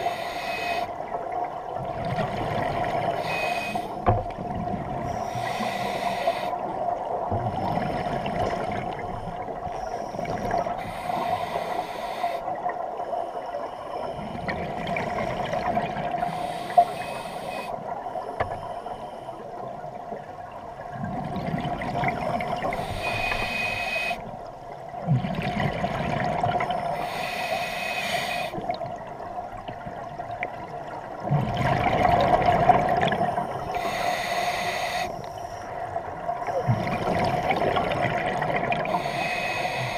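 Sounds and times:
diver breathing through regulator: 0.0s - 1.0s, 3.1s - 4.0s, 5.1s - 6.7s, 9.7s - 12.5s, 16.2s - 17.8s, 22.7s - 24.3s, 26.7s - 28.6s, 33.1s - 35.7s, 38.8s - 39.9s
exhaled bubbles bursting: 31.3s - 33.2s.

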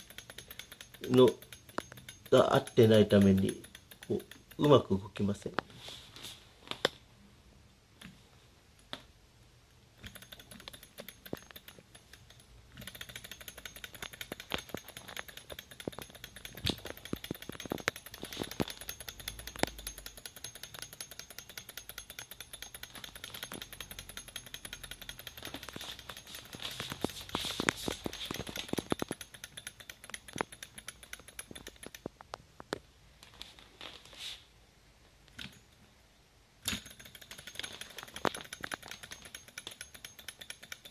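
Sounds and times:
model engine clicking and rattling: 0.0s - 5.0s, 10.0s - 32.2s, 36.6s - 40.9s.

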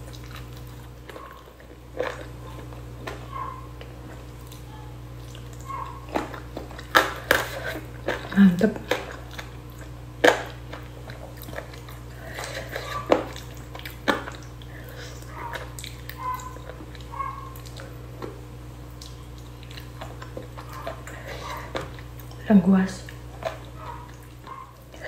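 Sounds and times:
person biting and chewing: 0.0s - 22.4s
wet mouth clicks and smacks: 8.9s - 17.9s, 18.9s - 21.1s.

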